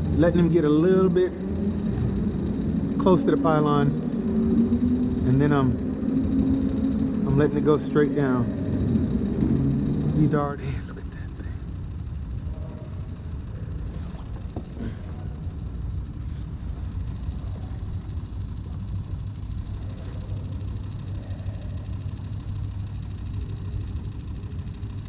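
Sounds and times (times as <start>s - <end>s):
distant traffic rumble: 0.0s - 24.4s.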